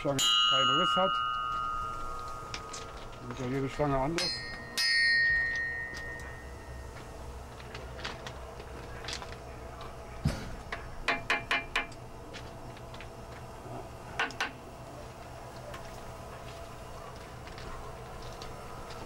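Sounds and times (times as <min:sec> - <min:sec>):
hammer tapping steel rods: 0:10.7 - 0:12.0, 0:14.2 - 0:14.6.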